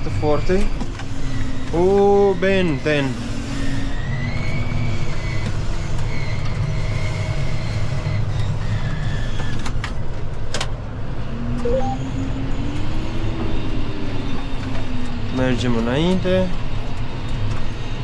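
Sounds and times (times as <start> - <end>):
low rising and falling tone: 11.6 - 12.2.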